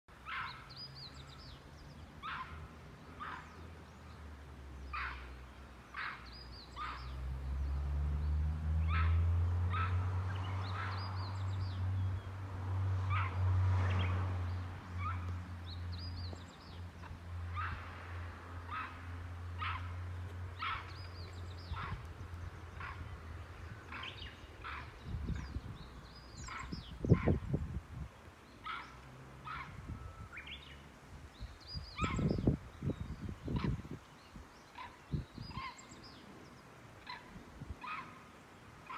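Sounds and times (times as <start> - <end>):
monkey alarm calls: 34.8 - 36.0.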